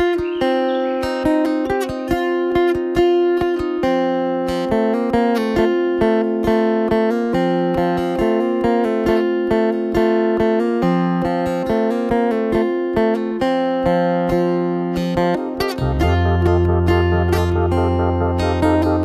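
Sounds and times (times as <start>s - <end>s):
plucked lute instrumental: 0.0s - 19.0s.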